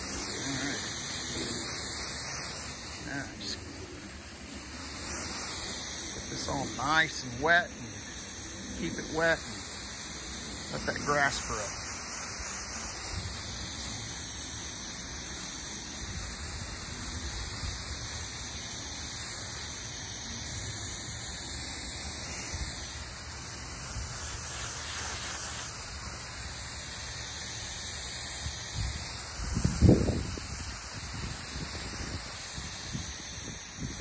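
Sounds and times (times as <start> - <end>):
hose spraying water on grass: 0.0 - 34.0.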